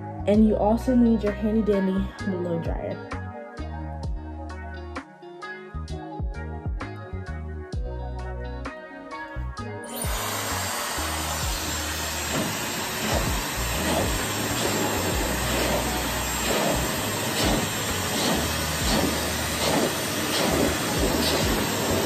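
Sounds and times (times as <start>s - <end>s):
hair dryer blowing: 9.9s - 22.0s.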